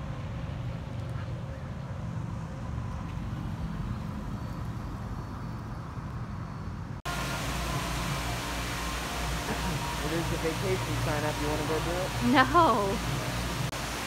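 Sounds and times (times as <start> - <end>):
distant traffic rumble: 0.0 - 14.0
steady hiss and hum: 7.1 - 14.0.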